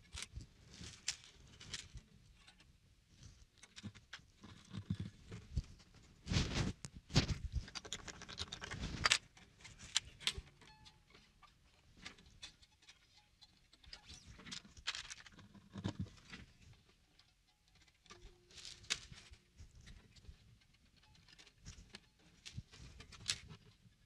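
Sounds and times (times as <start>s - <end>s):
guitar strings clicking and scraping: 7.2s - 23.8s.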